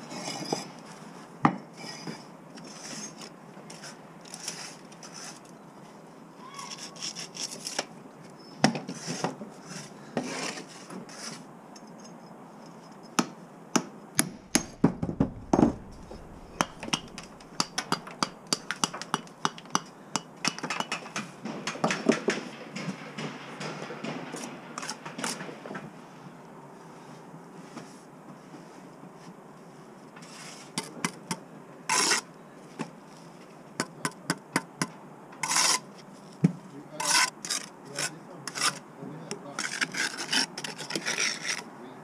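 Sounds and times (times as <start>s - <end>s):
bricks and tools knocking on boards: 14.2s - 25.6s.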